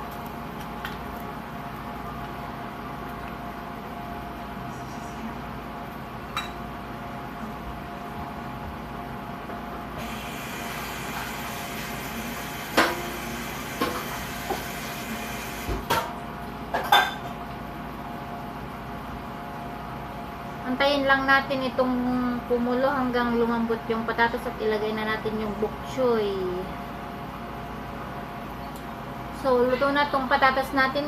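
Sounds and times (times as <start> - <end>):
kitchenware clinking: 6.3 - 6.6, 16.8 - 17.3.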